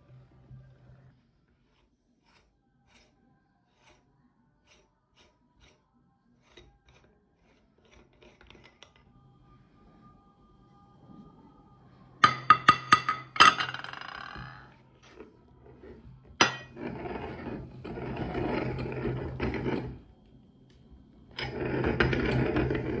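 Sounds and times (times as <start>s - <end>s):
metal scraping: 6.4s - 9.2s, 12.2s - 20.1s, 21.3s - 23.0s.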